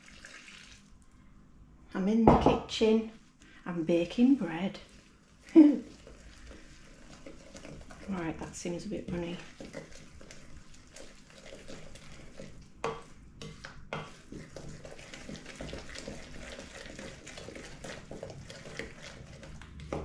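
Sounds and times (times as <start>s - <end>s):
spoon scraping batter in bowl: 4.0s - 20.0s.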